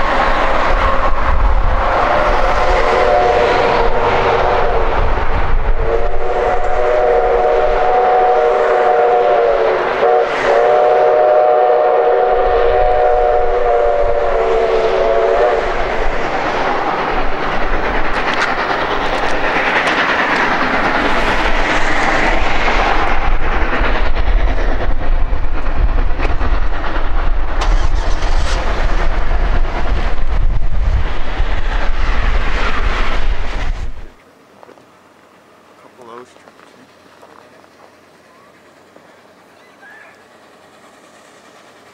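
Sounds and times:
steam locomotive heavy exhaust: 0.0 - 41.9
steam whistle chord blasts: 2.0 - 5.0, 5.7 - 15.8.

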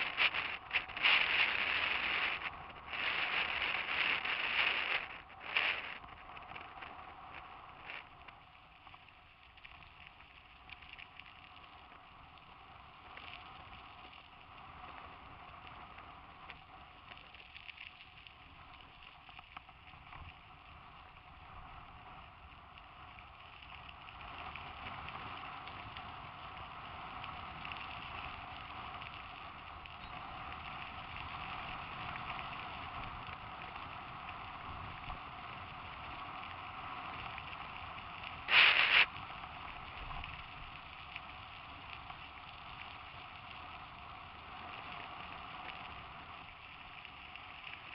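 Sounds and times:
bike tyres crunching on gravel: 0.0 - 11.9, 35.2 - 47.9.

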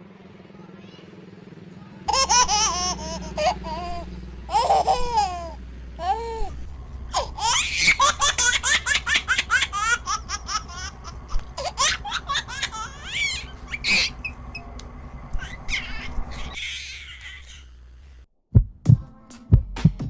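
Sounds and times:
high-pitched laughter: 15.4 - 17.7.

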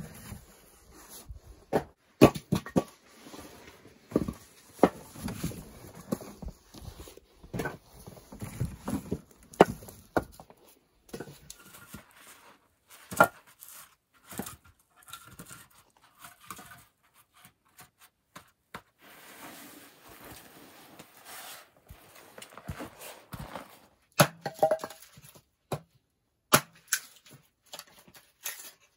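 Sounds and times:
firewood dropped into plastic sled: 1.7 - 12.4
soft rustling: 19.0 - 24.0.

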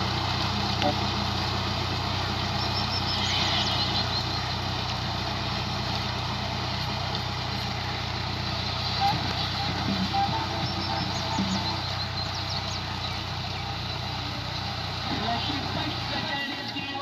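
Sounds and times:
rotavator tilling soil: 0.0 - 17.0
tractor diesel engine under load: 0.0 - 17.0.

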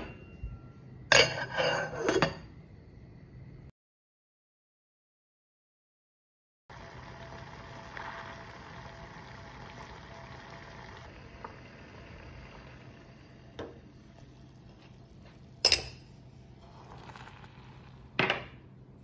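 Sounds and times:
water bubbling at a boil: 6.7 - 18.2.

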